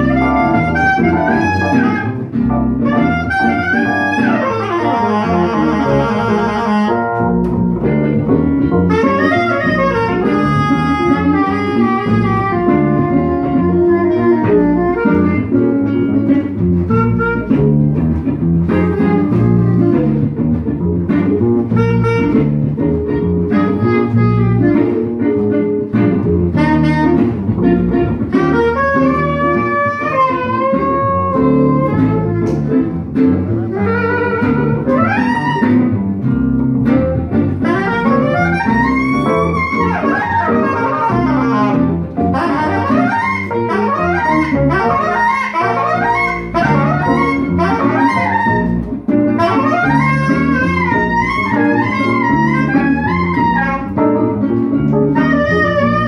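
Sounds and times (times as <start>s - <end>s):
acoustic guitar: 0.0s - 56.0s
electric keyboard: 0.0s - 56.0s
plucked double bass: 0.0s - 56.0s
saxophone melody: 0.0s - 56.0s.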